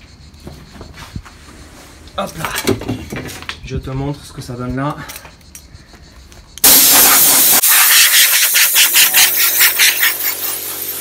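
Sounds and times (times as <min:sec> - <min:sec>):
compressed air hissing: 0:06.6 - 0:11.0.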